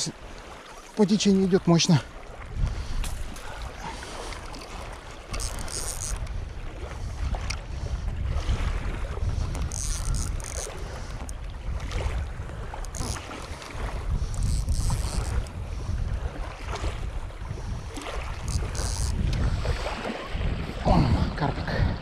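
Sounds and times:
gusty wind buffeting microphone: 0:02.3 - 0:22.0
high rasping bursts: 0:09.7 - 0:10.7, 0:18.5 - 0:19.1.

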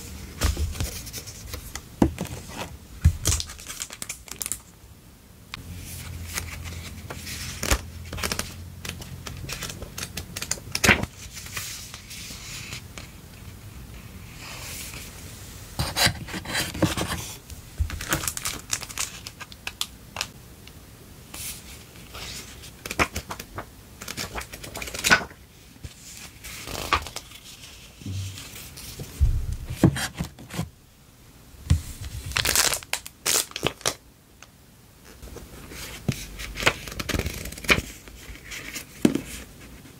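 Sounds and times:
plastic sleeves crinkling: 0:32.1 - 0:34.0.

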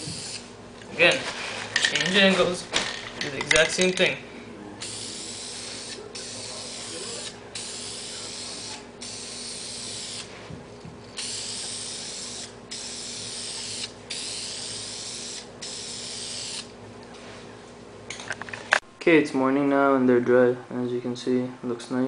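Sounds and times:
spray can hissing: 0:00.0 - 0:00.5, 0:04.8 - 0:10.3, 0:11.2 - 0:16.7.

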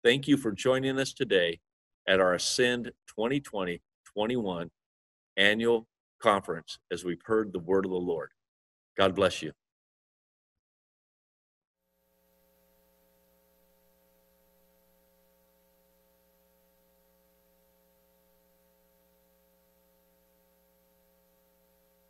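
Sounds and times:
faint steady hum: 0:11.9 - 0:22.0
thin high whine: 0:11.9 - 0:22.0.

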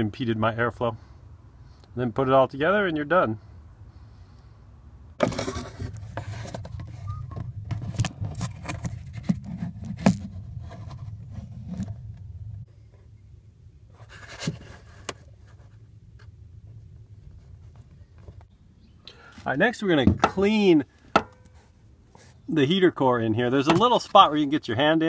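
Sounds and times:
camera handling rumble: 0:05.2 - 0:12.6.

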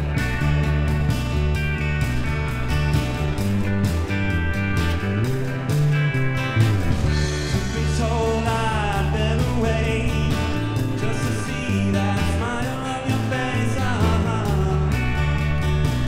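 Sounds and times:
live rock band playing: 0:00.0 - 0:16.0
man singing: 0:07.3 - 0:15.4.

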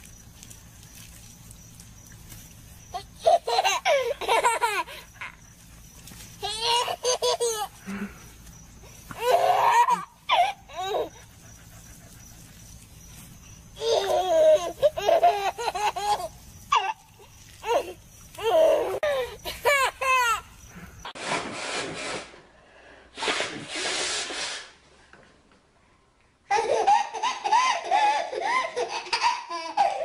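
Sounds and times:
baby laughing and squealing: 0:02.9 - 0:05.4, 0:06.4 - 0:07.8, 0:09.1 - 0:11.3, 0:13.8 - 0:20.5, 0:26.5 - 0:30.0
breathy hissing bursts: 0:20.7 - 0:24.8.

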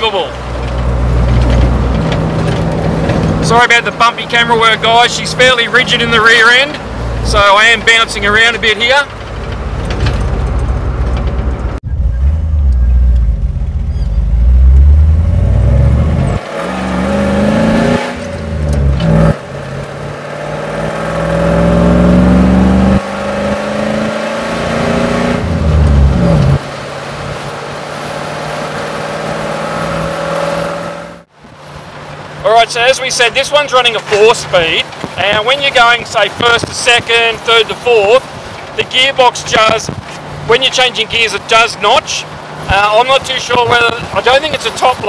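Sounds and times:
truck engine accelerating through gears: 0:00.0 - 0:31.3.

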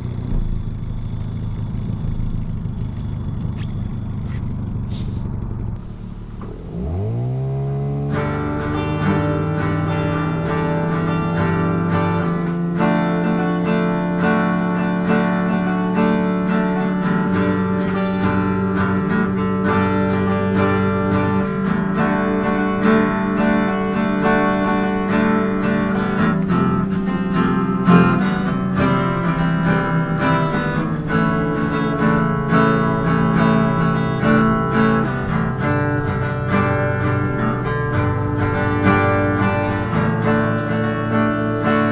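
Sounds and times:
strummed acoustic guitar: 0:05.8 - 0:41.9.

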